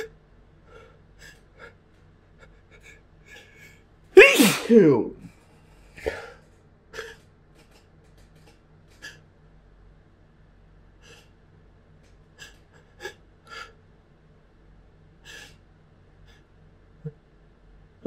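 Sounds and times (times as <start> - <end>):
person sniffing: 4.2 - 5.0.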